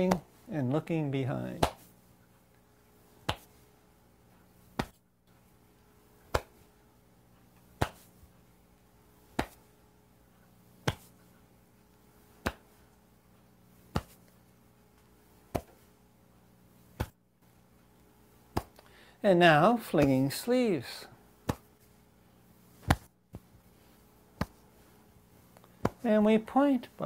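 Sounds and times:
faint steady hum: 0.0s - 27.0s
hands slapping body: 1.6s - 1.9s, 3.2s - 3.6s, 4.7s - 5.0s, 6.2s - 6.6s, 7.7s - 8.1s, 9.3s - 9.7s, 10.8s - 11.2s, 12.4s - 12.8s, 13.9s - 14.4s, 15.5s - 15.8s, 16.9s - 17.2s, 18.5s - 18.8s, 20.0s - 20.2s, 21.4s - 21.9s, 22.8s - 23.5s, 24.4s - 24.7s, 25.6s - 26.0s.

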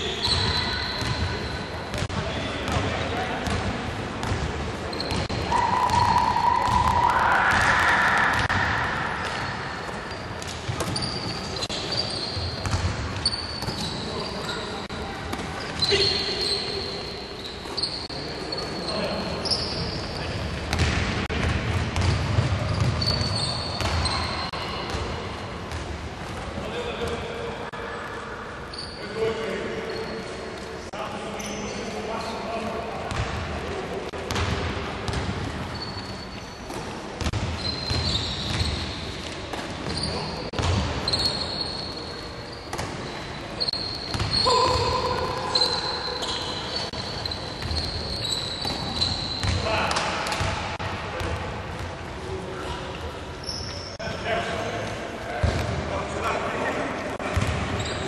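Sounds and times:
shoe squeak: 0.0s - 1.7s, 4.9s - 5.3s, 9.4s - 14.8s, 15.6s - 20.6s, 22.6s - 24.9s, 28.7s - 30.4s, 31.3s - 32.3s, 35.6s - 36.8s, 37.5s - 49.7s, 53.4s - 54.0s, 57.4s - 58.0s
basketball bouncing on court: 0.3s - 1.3s, 1.9s - 8.6s, 12.3s - 14.0s, 20.7s - 24.2s, 36.7s - 38.9s, 39.5s - 41.3s, 44.0s - 45.4s, 47.6s - 51.9s, 55.4s - 55.8s, 57.2s - 57.9s.

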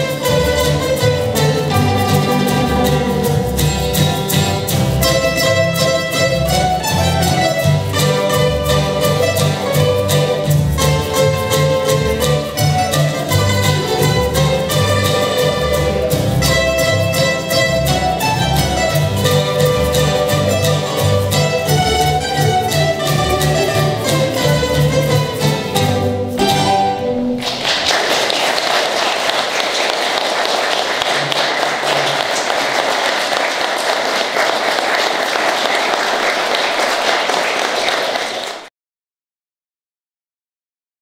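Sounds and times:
plucked string ensemble playing: 0.0s - 29.5s
audience applauding: 27.4s - 38.7s.

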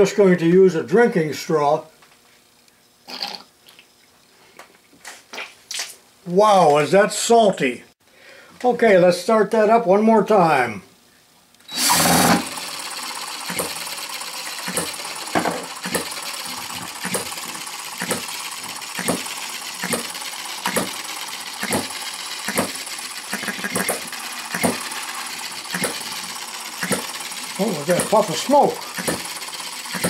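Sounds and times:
cordless drill spinning: 11.6s - 30.0s
model engine clattering and popping: 11.9s - 30.0s.

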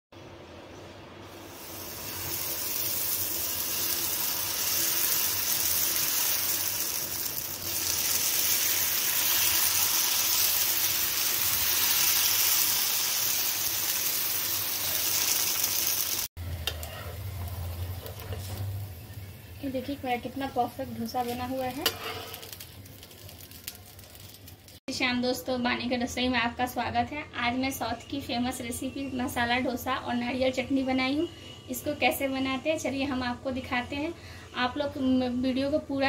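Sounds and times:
batter sizzling on a hot griddle: 1.2s - 24.9s.

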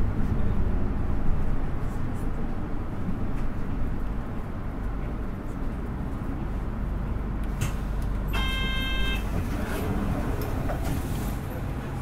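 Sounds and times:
bus diesel engine rumble: 0.0s - 12.0s
short electronic beep: 8.4s - 9.3s.

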